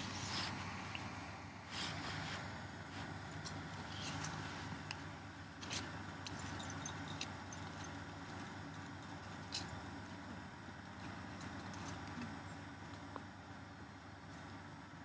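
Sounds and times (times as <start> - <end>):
low steady hum: 0.0 - 15.0
horse tearing and chewing grass: 1.8 - 5.0.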